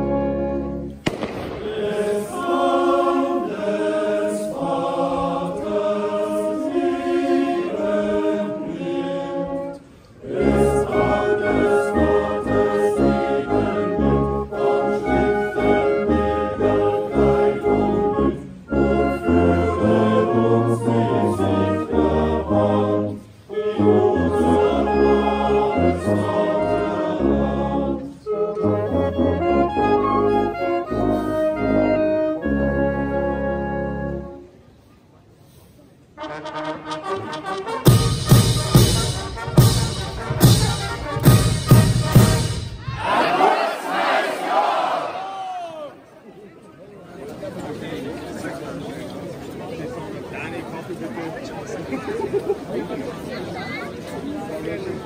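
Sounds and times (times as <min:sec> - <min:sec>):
choir singing a carol: 0:00.0 - 0:34.4, 0:38.4 - 0:45.2
brass band accompanying: 0:00.0 - 0:34.6, 0:36.1 - 0:45.1.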